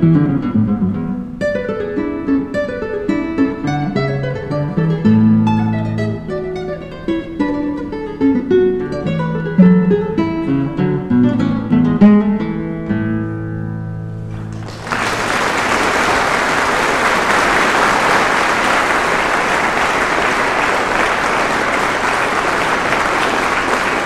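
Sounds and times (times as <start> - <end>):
classical guitar playing: 0.0 - 14.7
audience applause: 14.3 - 24.0.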